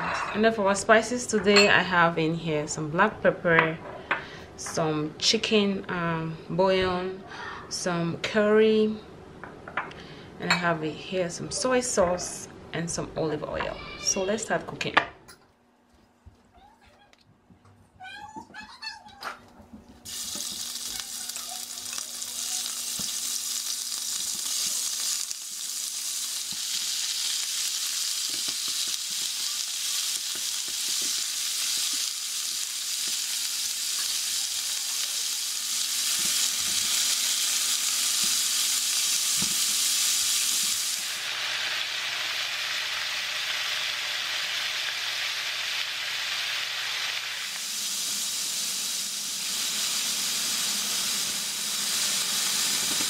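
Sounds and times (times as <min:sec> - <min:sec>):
meat sizzling in frying pan: 0:20.1 - 0:53.0
spatula tapping and scraping: 0:30.2 - 0:32.1.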